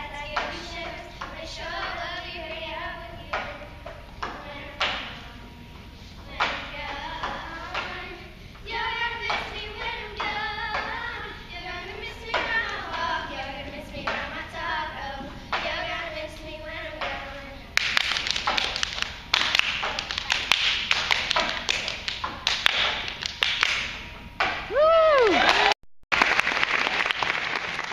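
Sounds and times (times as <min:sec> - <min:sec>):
girls singing together: 0:00.0 - 0:21.8
audience applause: 0:24.8 - 0:27.9.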